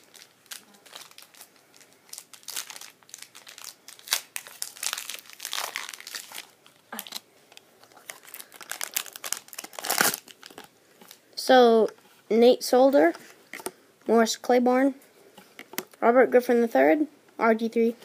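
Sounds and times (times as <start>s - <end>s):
wrapper crinkling and tearing: 0.0s - 11.2s.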